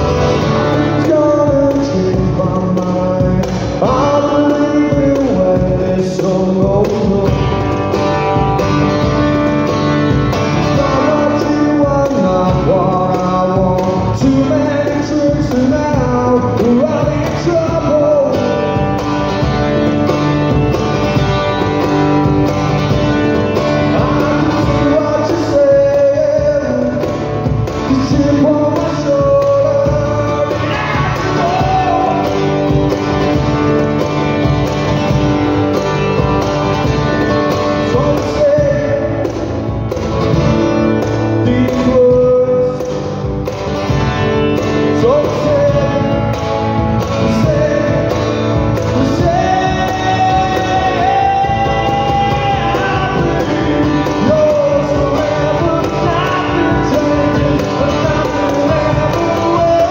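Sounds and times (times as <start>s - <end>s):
man singing: 0.0s - 43.8s, 44.4s - 59.9s
cajon beat: 0.0s - 59.9s
strummed acoustic guitar: 0.0s - 59.9s.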